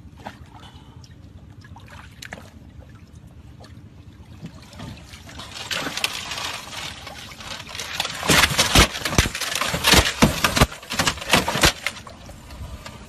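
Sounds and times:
loud knocks and thumps: 7.7 - 12.0.

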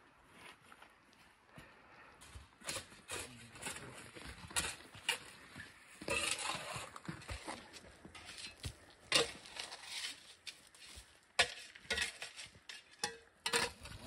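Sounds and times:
shovel digging rocky dirt: 2.6 - 14.0.

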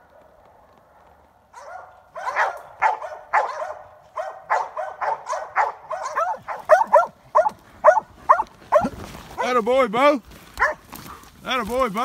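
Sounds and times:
dogs barking: 1.5 - 9.5, 10.6 - 11.2.

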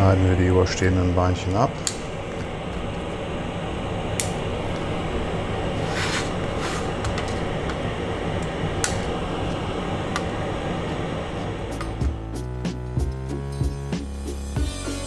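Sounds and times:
wire cutters snipping: 1.8 - 2.2.

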